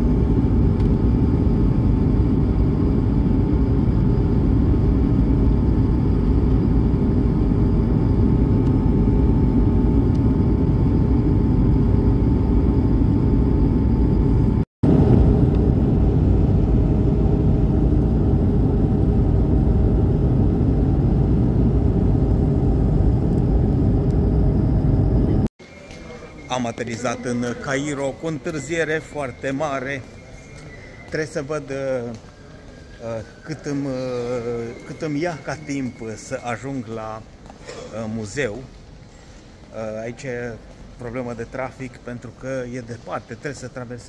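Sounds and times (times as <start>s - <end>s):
jet engine rumble in cabin: 0.0s - 25.5s.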